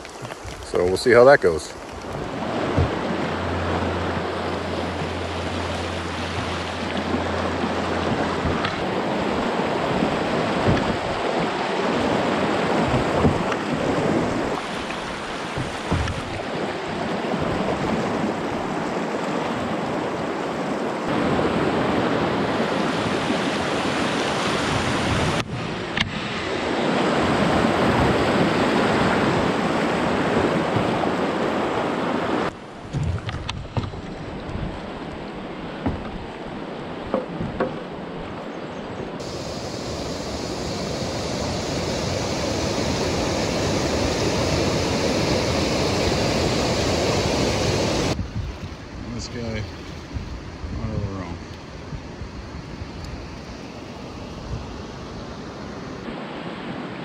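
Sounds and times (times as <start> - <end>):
wind buffeting microphone: 1.9 - 18.9, 39.2 - 56.1
river rapids rushing over rocks: 39.2 - 48.2.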